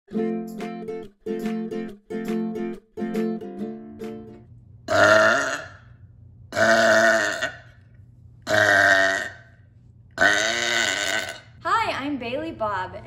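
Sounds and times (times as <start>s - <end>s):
person burping: 4.9s - 5.8s, 6.6s - 7.7s, 8.5s - 9.5s, 10.2s - 11.5s.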